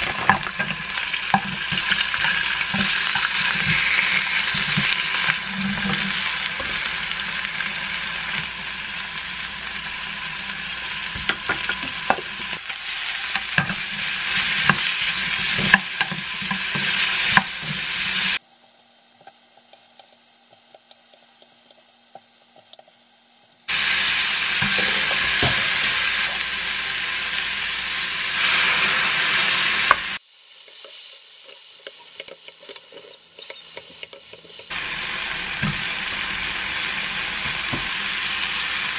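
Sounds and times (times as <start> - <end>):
food sizzling in a frying pan: 0.0 - 38.9
utensils clicking against pan: 31.8 - 34.7.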